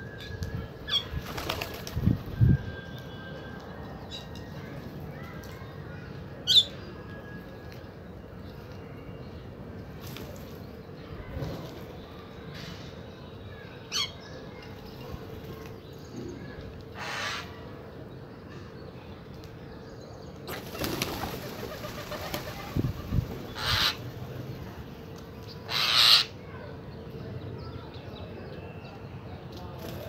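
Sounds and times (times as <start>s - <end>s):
bird wings flapping: 1.2s - 2.2s, 20.5s - 23.4s.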